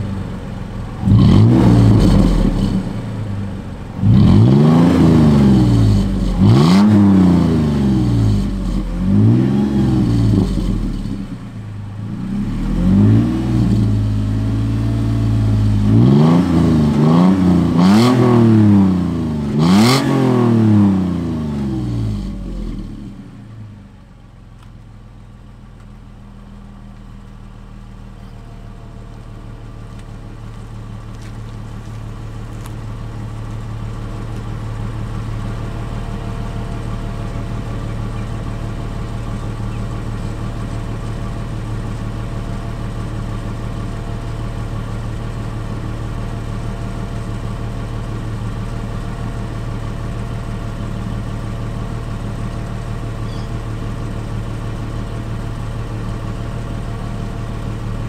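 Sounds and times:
engine idling deeply: 0:00.0 - 0:19.6, 0:20.4 - 0:58.0
engine revving: 0:00.9 - 0:23.4.

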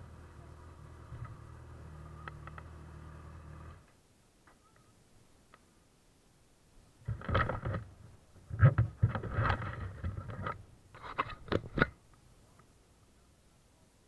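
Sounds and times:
scraping and rubbing: 0:08.5 - 0:11.9.

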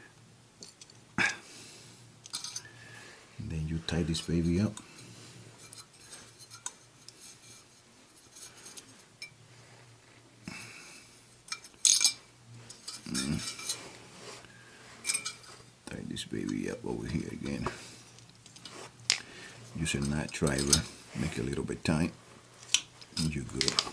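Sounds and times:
metallic clinks and taps: 0:02.2 - 0:02.7, 0:11.5 - 0:13.8, 0:15.0 - 0:15.6.

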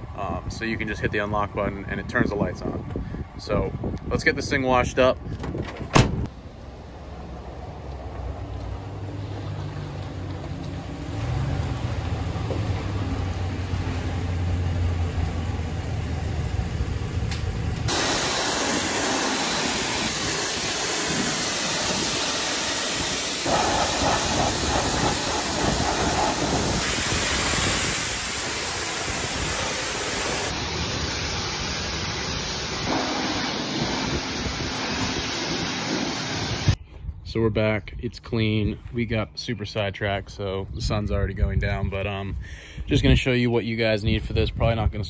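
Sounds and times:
pressure washer spray hissing: 0:17.9 - 0:36.8
low hum: 0:30.6 - 0:36.8.

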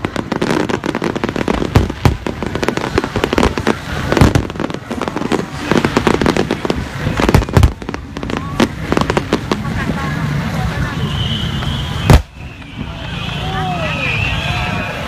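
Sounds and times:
loud firework booms: 0:00.0 - 0:10.0, 0:11.6 - 0:13.0
fireworks crackling bangs: 0:00.0 - 0:15.0.

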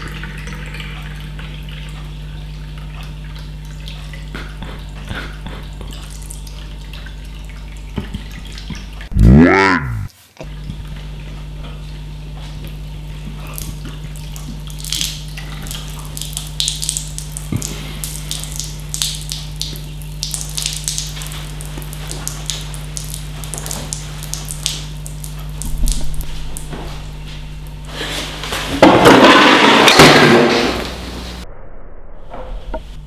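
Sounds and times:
steady low hum: 0:00.0 - 0:33.0
light drips: 0:10.4 - 0:27.9.

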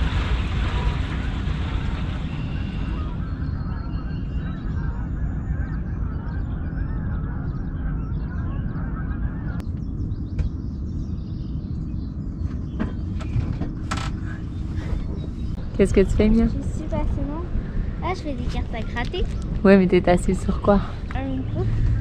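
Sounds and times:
geese honking: 0:00.0 - 0:09.6
low rumble: 0:00.0 - 0:22.0.

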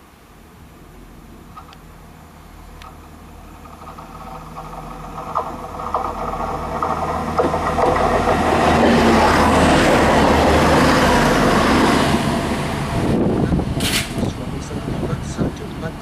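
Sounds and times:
train cars rushing past: 0:00.9 - 0:16.0
train wheels clicking: 0:02.8 - 0:12.8, 0:13.7 - 0:15.9.

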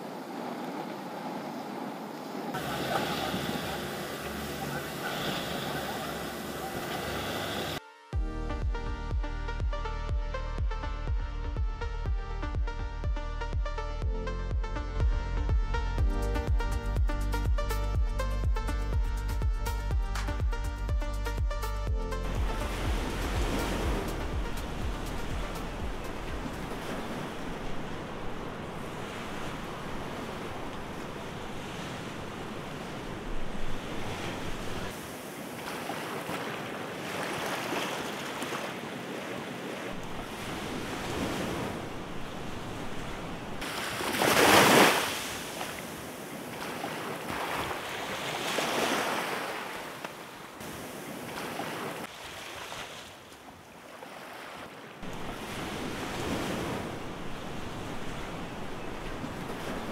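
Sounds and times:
small waves washing on beach: 0:00.0 - 0:07.8, 0:22.4 - 0:59.9.

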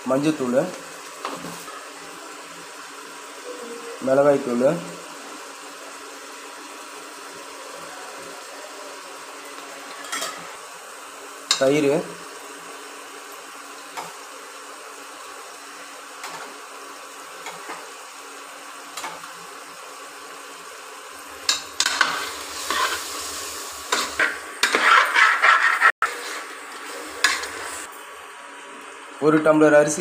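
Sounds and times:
food sizzling in a pot: 0:00.0 - 0:30.0
spatula scraping a metal pot: 0:21.5 - 0:27.9.

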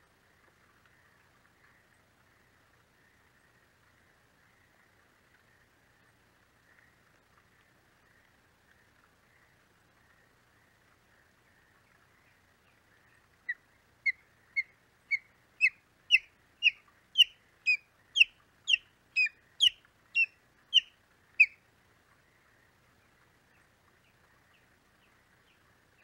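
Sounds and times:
osprey calling: 0:13.1 - 0:21.6.

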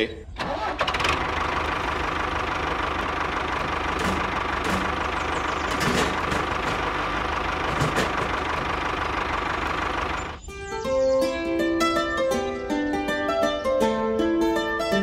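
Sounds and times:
tractor engine idling: 0:00.3 - 0:10.5.

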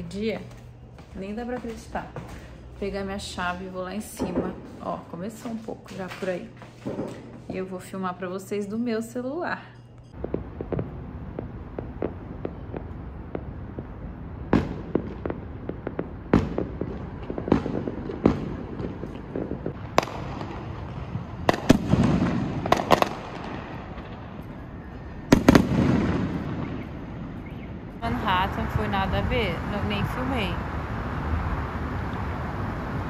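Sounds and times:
fireworks bangs and pops: 0:05.4 - 0:07.6, 0:10.2 - 0:24.2, 0:25.3 - 0:26.9.

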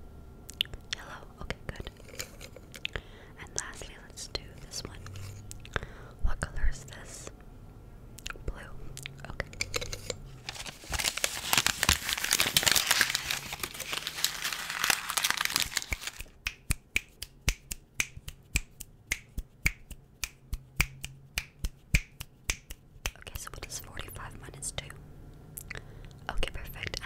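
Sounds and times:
finger snapping: 0:15.9 - 0:23.2.

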